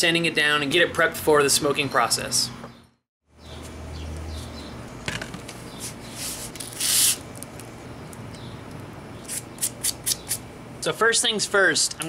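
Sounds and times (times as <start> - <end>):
sandpaper handling clicks and rustles: 5.8 - 7.7.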